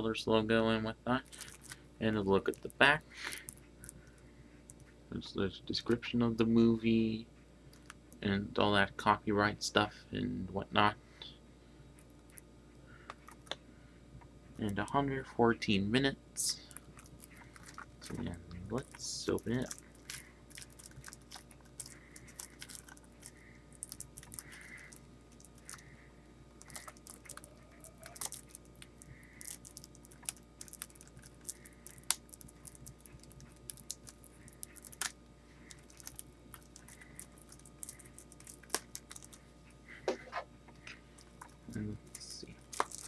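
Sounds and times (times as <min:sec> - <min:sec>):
plastic shrink wrap crinkling: 0:01.2 - 0:04.8, 0:16.6 - 0:39.5, 0:40.1 - 0:43.0.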